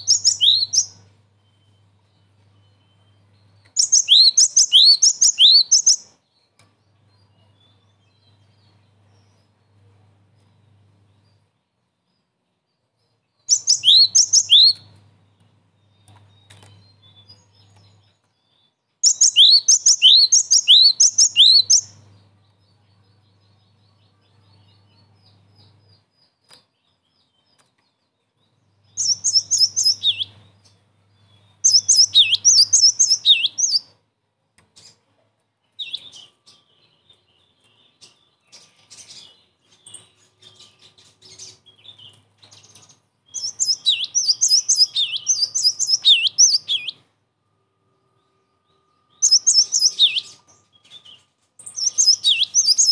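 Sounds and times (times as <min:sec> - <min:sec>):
bird rapid high chirping: 0:00.0 - 0:06.3, 0:13.4 - 0:27.7, 0:28.5 - 0:34.0, 0:35.8 - 0:47.1, 0:49.1 - 0:52.9.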